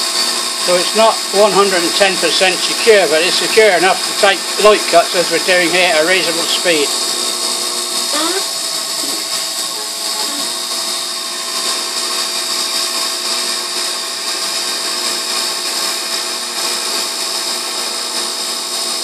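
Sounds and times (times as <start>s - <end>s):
lathe machine whine: 0.0s - 19.0s
cutting hiss: 0.6s - 11.5s.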